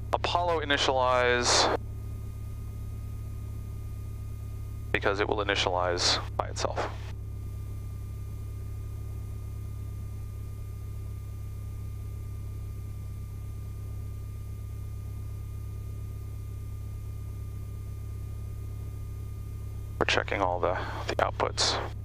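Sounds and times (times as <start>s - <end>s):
aircraft engine idling: 2.8s - 15.3s, 17.1s - 22.0s.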